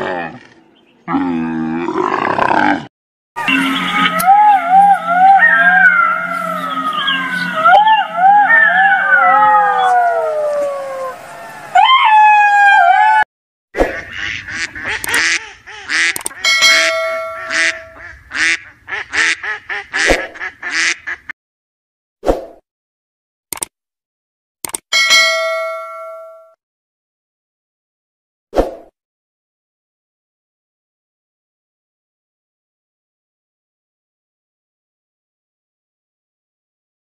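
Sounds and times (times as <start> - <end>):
ducks quacking: 3.4 - 8.2, 13.8 - 21.3
fox whining cries: 3.5 - 13.2.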